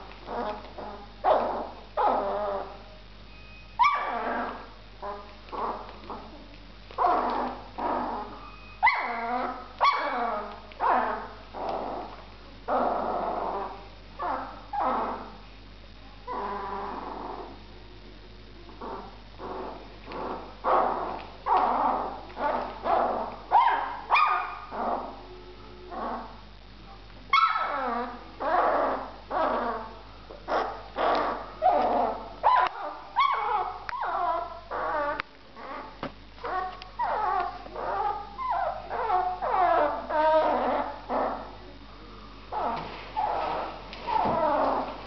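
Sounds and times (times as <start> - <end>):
puppy crying: 7.0 - 12.0, 30.6 - 41.5.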